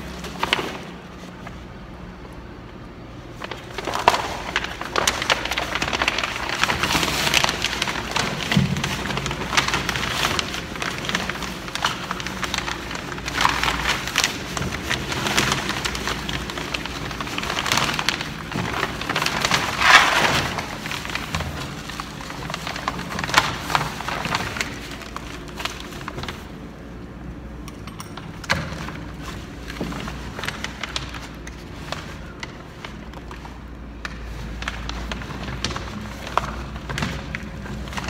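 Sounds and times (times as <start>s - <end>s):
plastic sheeting crinkling: 0.0s - 27.4s, 28.6s - 38.0s.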